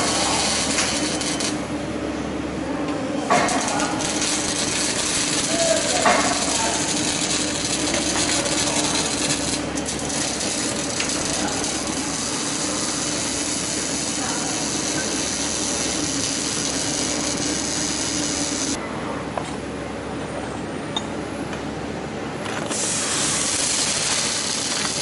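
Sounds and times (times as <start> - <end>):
welding arc crackling: 0.0 - 1.6, 3.3 - 18.8, 22.7 - 25.0
steady low hum: 0.0 - 24.9.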